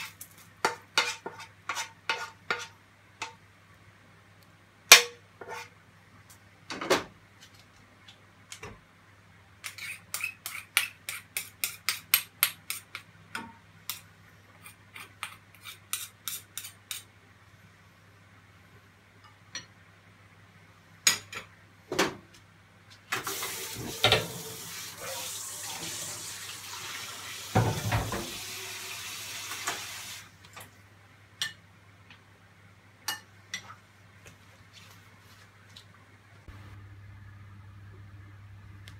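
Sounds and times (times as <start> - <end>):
utensil scraping a frying pan: 0.0 - 2.8, 5.4 - 5.8, 9.6 - 12.0.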